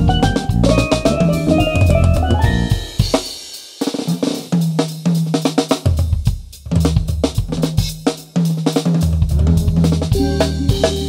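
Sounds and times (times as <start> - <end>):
bass guitar low notes: 0.0 - 2.8, 9.3 - 11.0
drum kit funk groove: 0.0 - 11.0.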